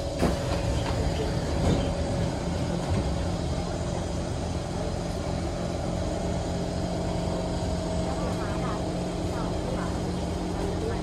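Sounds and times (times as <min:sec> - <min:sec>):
train doors sliding open: 0:00.0 - 0:04.0
train equipment hum: 0:00.0 - 0:11.0.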